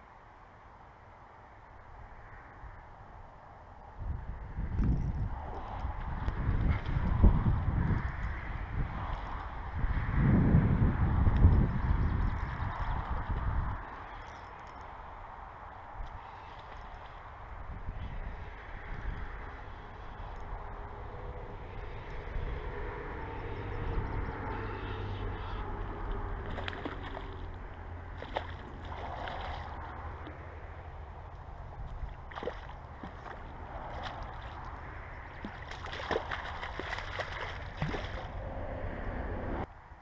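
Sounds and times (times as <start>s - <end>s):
wind rumble on microphone: 1.5s - 40.0s
fish splashing in water: 26.3s - 30.1s, 31.9s - 38.4s.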